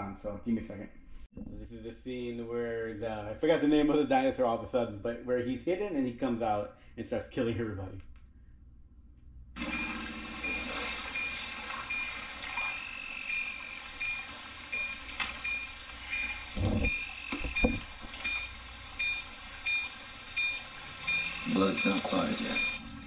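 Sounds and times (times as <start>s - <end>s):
repeating high electronic beep: 9.6s - 22.9s.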